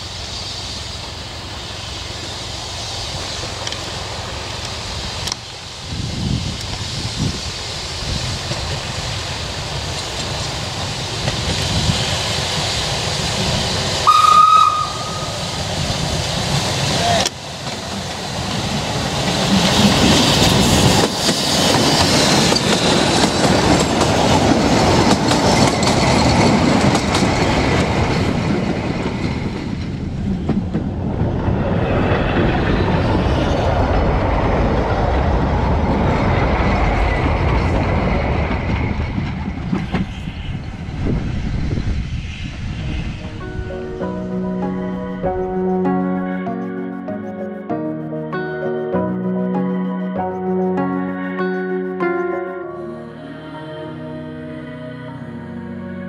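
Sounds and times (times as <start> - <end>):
train wheels rumbling and clattering: 0.0 - 14.1, 14.7 - 45.3
steam locomotive whistle: 14.0 - 15.6.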